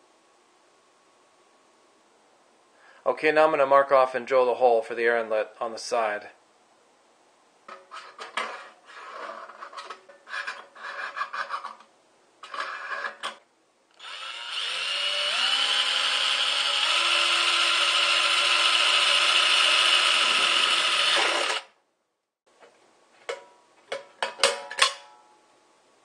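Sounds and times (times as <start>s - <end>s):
scraping and handling noises: 7.6s - 13.5s
cordless drill boring through metal: 14.0s - 21.8s.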